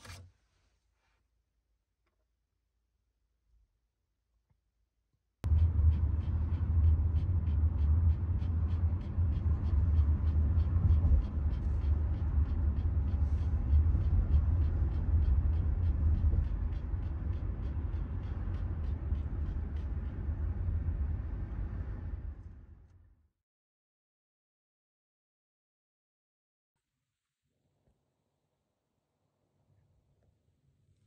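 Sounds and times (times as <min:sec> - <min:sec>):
car cabin rumble: 0:05.4 - 0:22.4
dog panting rapidly: 0:05.5 - 0:22.2.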